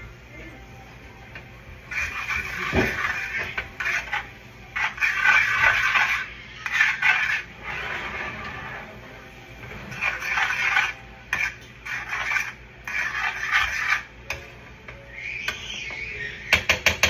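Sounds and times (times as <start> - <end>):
metal spoon scraping a metal pan: 1.9 - 8.9, 9.6 - 14.5.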